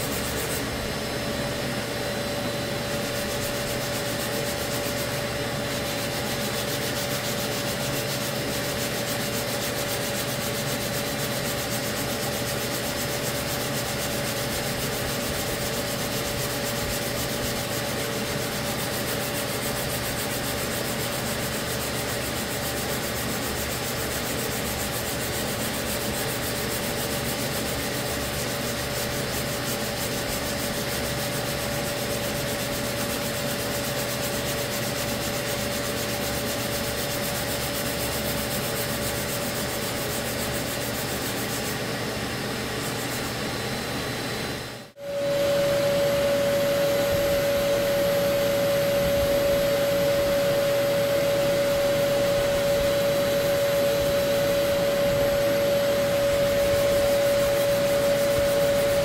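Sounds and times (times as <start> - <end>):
sandpaper rubbing: 0.0 - 0.7, 2.9 - 43.3, 56.1 - 59.0
steady hum: 0.0 - 59.0.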